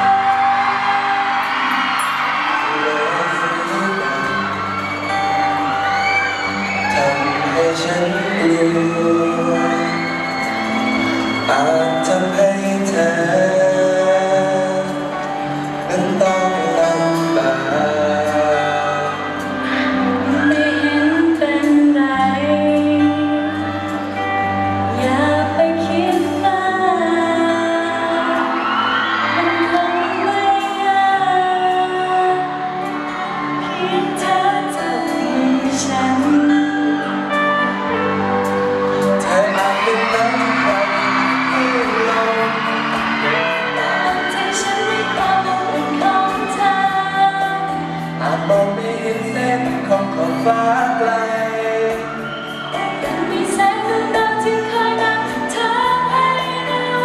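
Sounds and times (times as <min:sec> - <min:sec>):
band accompaniment: 0:00.0 - 0:57.0
man singing: 0:02.6 - 0:04.6, 0:06.8 - 0:10.5, 0:11.3 - 0:22.3, 0:39.0 - 0:52.2
woman singing: 0:15.9 - 0:38.2, 0:43.5 - 0:51.9, 0:52.6 - 0:57.0.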